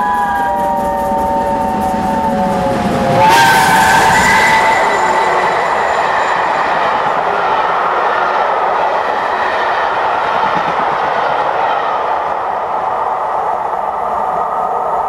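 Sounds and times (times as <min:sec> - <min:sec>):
locomotive chime whistle: 0:00.0 - 0:07.9
train wheels rushing on rail: 0:00.0 - 0:15.0.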